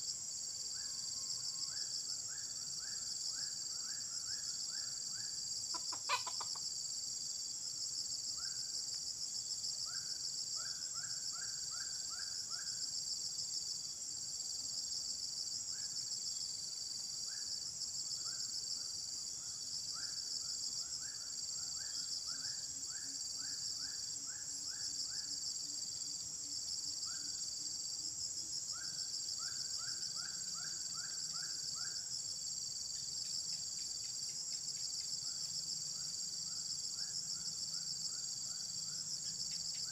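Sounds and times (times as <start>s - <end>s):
insects pulsing chorus: 0.0s - 39.9s
short repeated bird calls: 5.8s - 6.6s.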